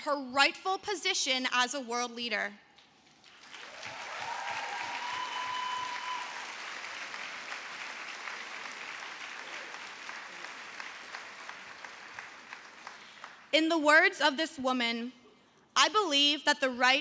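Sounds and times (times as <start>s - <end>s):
audience applauding: 3.2s - 13.5s
high call from crowd: 3.6s - 6.6s.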